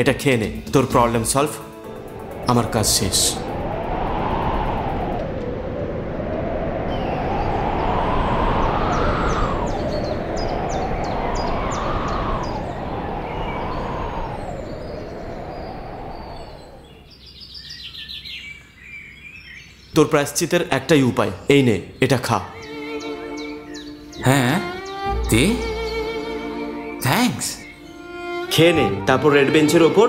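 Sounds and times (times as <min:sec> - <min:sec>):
birds chirping: 0:00.0 - 0:30.0
whooshing rising and falling in pitch: 0:01.6 - 0:17.1.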